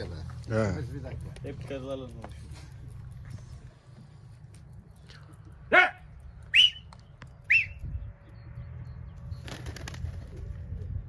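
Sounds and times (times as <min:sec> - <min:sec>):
man shouting: 0:05.7 - 0:06.0
sharp whistles: 0:06.4 - 0:08.0.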